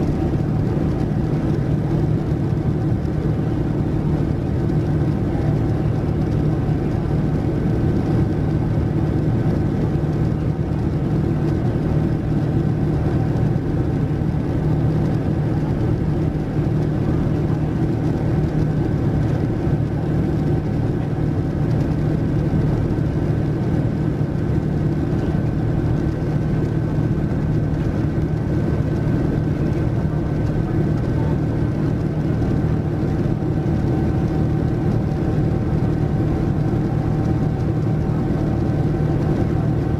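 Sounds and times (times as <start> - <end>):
jet engine cabin noise: 0.0 - 39.9.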